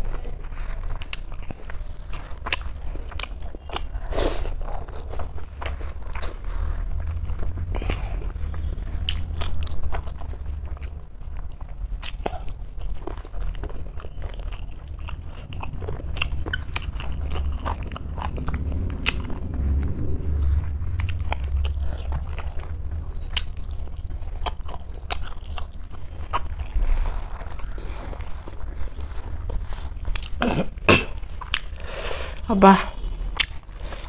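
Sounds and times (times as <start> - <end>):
low rumble: 0.0 - 34.0
person chewing food: 0.0 - 34.0.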